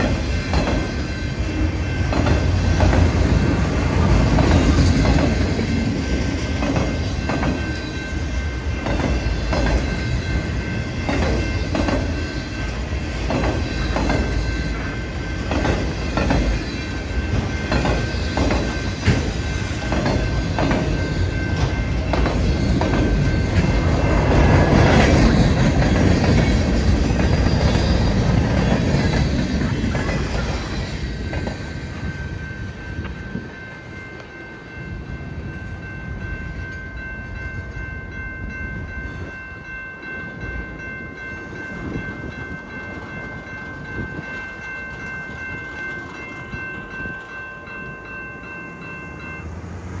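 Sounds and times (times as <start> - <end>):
freight train cars rolling past: 0.0 - 50.0
level crossing warning bell: 0.0 - 50.0.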